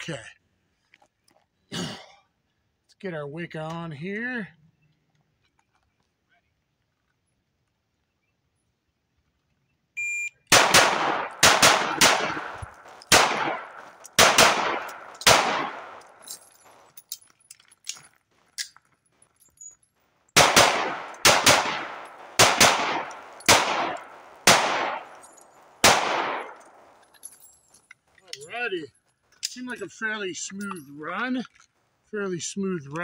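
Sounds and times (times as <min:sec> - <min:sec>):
pistol shots with echo: 0:10.5 - 0:16.4, 0:20.4 - 0:27.0.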